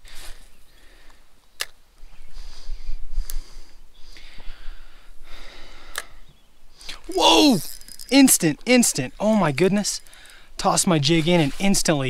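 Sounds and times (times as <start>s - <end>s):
fishing reel clicks: 7.4s - 8.4s, 9.9s - 10.4s
breathy hissing: 10.0s - 11.7s.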